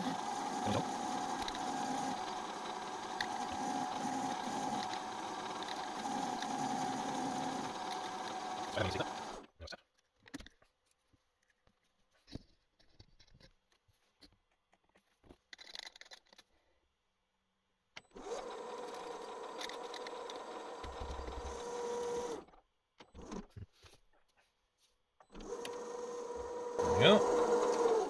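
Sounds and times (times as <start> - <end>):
drill boring into metal: 0.0 - 9.4, 18.2 - 22.4, 25.4 - 28.0
metal lathe whining: 0.0 - 9.4, 18.2 - 22.4, 25.4 - 28.0.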